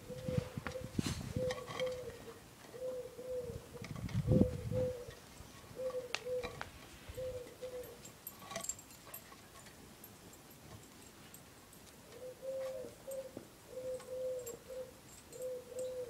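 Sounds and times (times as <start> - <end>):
pigeon cooing: 0.0 - 8.6, 12.0 - 16.0.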